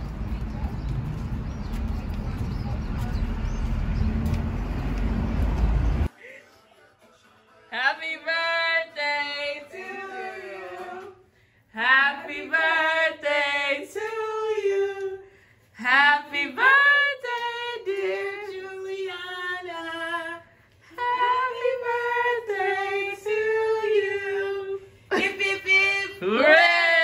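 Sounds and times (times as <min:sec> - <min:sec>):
woman singing unaccompanied: 0:11.8 - 0:26.8.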